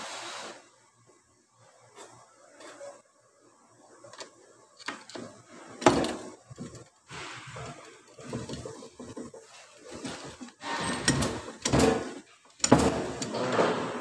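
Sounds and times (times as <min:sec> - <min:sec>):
metal parts clicking and clunking: 0:04.2 - 0:14.0.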